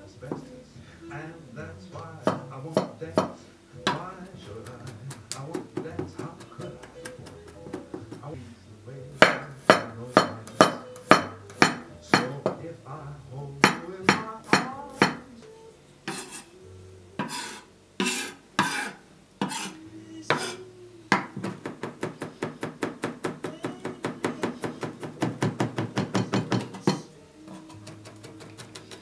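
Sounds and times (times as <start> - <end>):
knife chopping on wooden board: 9.2 - 12.6, 20.3 - 27.0.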